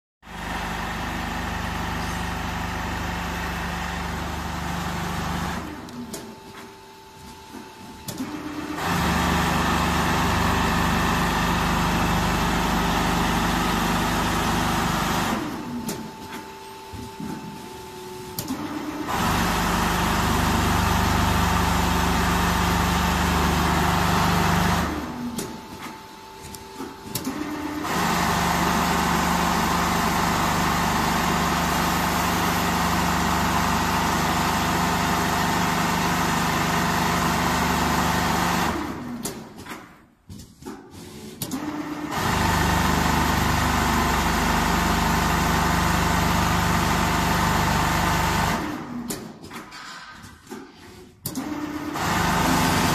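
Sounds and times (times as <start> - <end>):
sewing machine stitching: 8.3 - 15.6, 41.1 - 49.2, 51.0 - 52.9.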